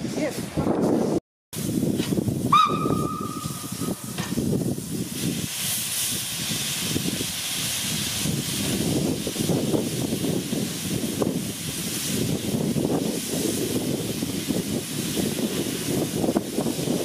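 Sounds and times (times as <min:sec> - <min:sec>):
steam hissing: 0:01.6 - 0:17.0
steam locomotive whistle: 0:02.5 - 0:04.2.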